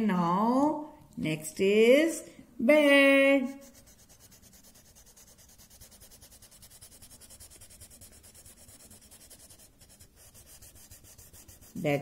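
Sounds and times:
crayon scribbling on paper: 3.5s - 12.0s.

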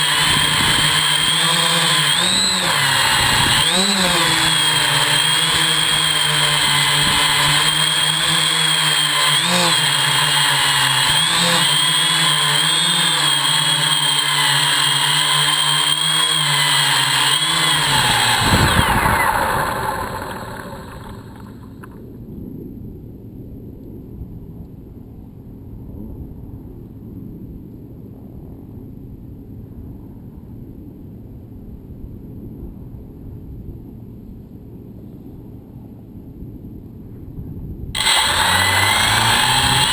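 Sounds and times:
drone motors and propellers whirring: 0.0s - 22.0s, 38.0s - 39.9s
wind on microphone: 18.0s - 19.8s.

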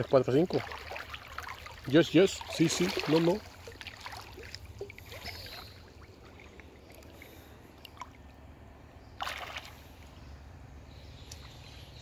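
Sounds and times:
water lapping and trickling: 0.0s - 12.0s
fish splashing at surface: 9.2s - 9.9s.

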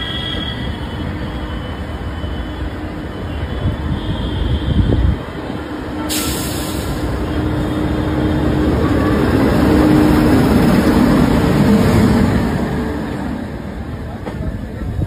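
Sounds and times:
train passing rumble and hum: 0.0s - 6.1s, 6.7s - 15.0s
loud hiss: 6.1s - 7.4s.

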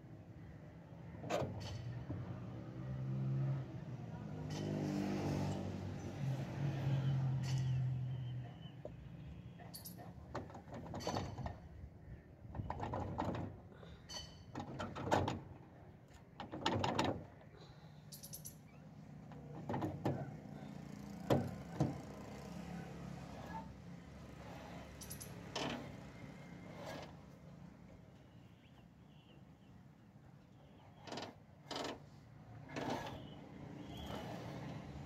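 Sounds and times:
metal scrapes and clinks: 7.4s - 7.9s, 9.7s - 10.0s, 18.1s - 18.8s, 24.4s - 26.0s.

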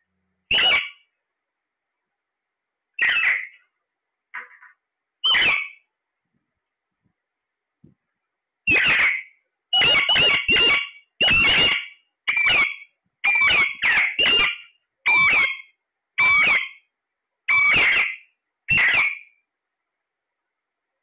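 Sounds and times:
parakeets screeching: 0.5s - 1.0s, 3.0s - 3.6s, 5.2s - 5.8s, 8.7s - 16.8s, 17.5s - 19.4s.

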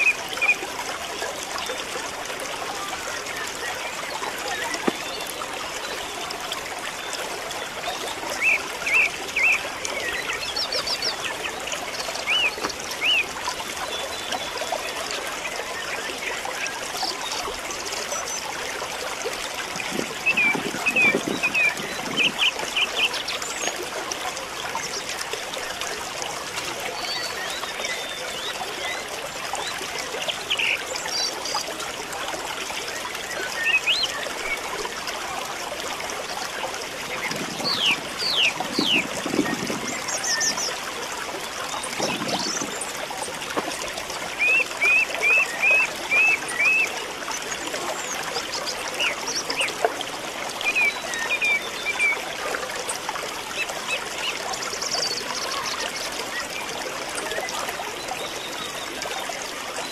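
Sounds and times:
water trickling: 0.0s - 59.9s
birds chirping: 19.8s - 23.7s, 37.0s - 40.8s, 41.7s - 43.8s.

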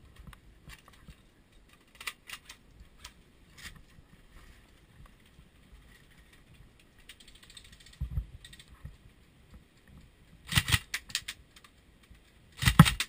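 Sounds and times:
sharp clicks and knocks: 6.2s - 13.0s.

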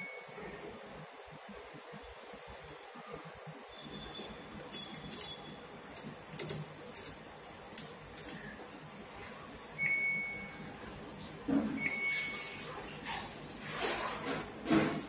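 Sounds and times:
washing machine dial clicking: 4.7s - 5.4s, 6.0s - 7.2s, 7.8s - 8.4s
short electronic beeps: 4.7s - 7.2s.

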